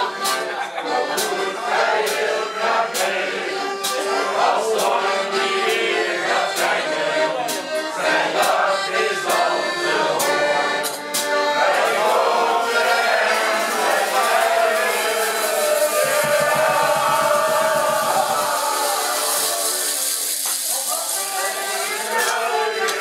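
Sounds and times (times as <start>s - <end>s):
accordion: 0.0s - 23.0s
group singing: 0.0s - 23.0s
sharp beat taps: 13.7s - 19.0s.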